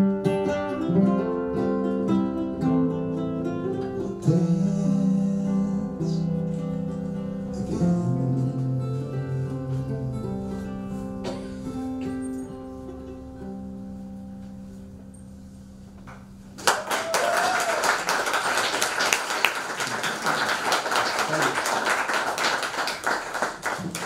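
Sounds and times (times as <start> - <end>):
acoustic guitar and mandola: 0.0 - 16.4
audience applause: 16.6 - 24.0.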